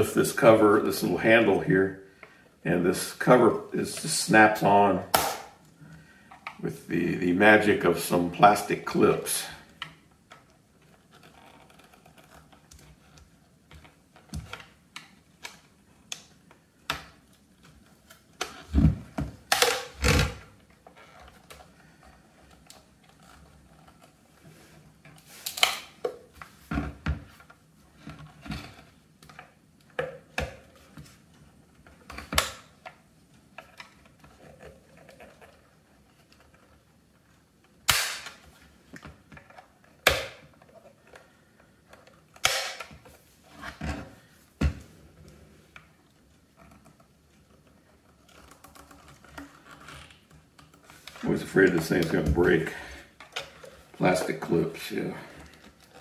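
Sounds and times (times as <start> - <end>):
plastic snaps: 25.4 - 26.5, 37.8 - 41.3, 42.0 - 44.0.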